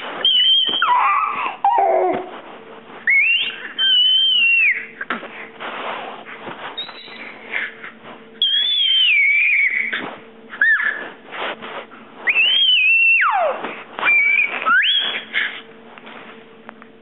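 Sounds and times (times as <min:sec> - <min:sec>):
baby squealing: 0:00.2 - 0:02.3, 0:03.1 - 0:04.9, 0:08.4 - 0:10.0, 0:10.6 - 0:11.2, 0:12.3 - 0:15.6.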